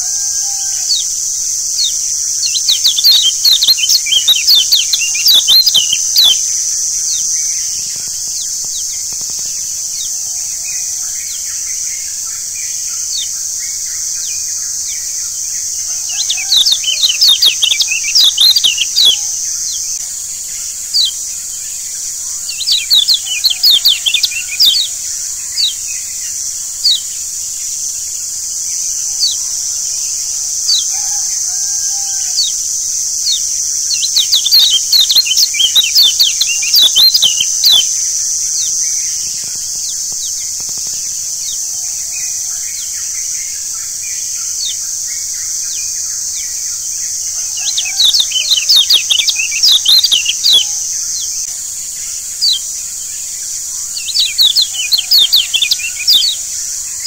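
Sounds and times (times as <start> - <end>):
steady high hiss: 0.0 - 57.0
birds chirping sharp high notes: 0.8 - 7.7, 15.0 - 20.0, 22.4 - 27.3, 32.3 - 38.8, 47.4 - 51.5, 54.0 - 56.5
short lower bird calls: 1.8 - 6.5, 15.9 - 20.0, 47.6 - 51.4.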